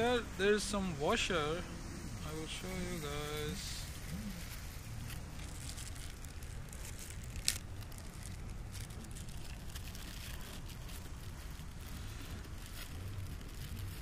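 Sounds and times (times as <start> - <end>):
steady low rumble: 0.0 - 14.0
plastic bag crinkling: 2.3 - 14.0.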